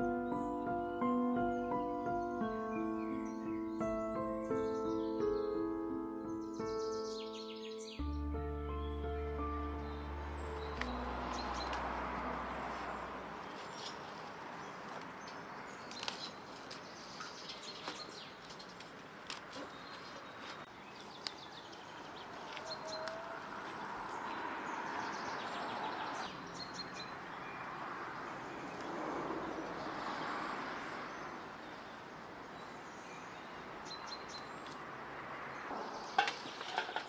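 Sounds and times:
small birds chirping: 0.0 - 37.0
steady outdoor hiss: 0.0 - 37.0
snaps and rustles of picked greens: 13.4 - 23.2.

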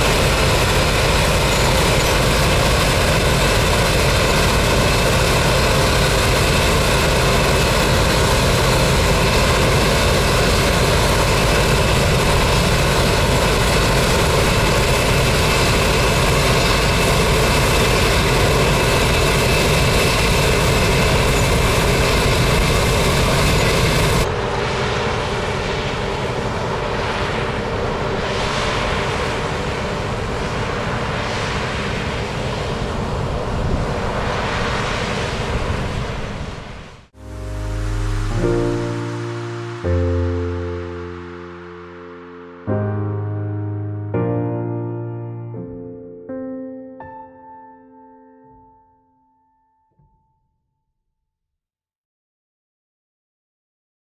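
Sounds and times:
steady whining tones: 0.0 - 28.6
gusty wind noise: 0.0 - 37.1
combine harvester engine drone: 0.0 - 43.7.

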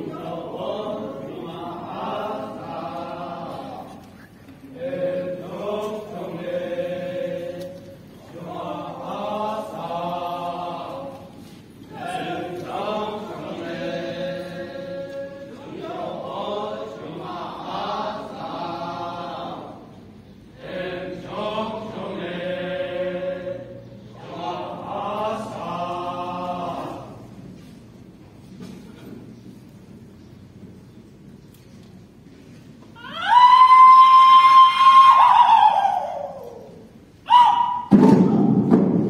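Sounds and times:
group chanting in unison: 0.0 - 4.0, 4.6 - 20.0, 20.6 - 27.3.

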